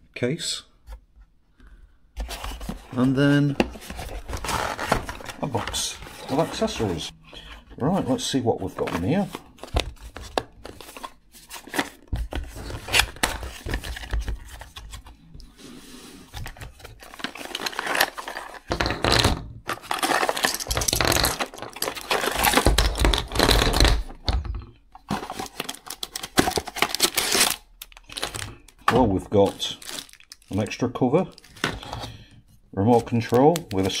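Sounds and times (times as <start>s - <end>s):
packaging rustling and crinkling: 2.2s - 7.1s, 8.8s - 15.2s, 16.3s - 18.7s, 19.7s - 24.1s, 25.0s - 32.2s, 32.9s - 34.0s.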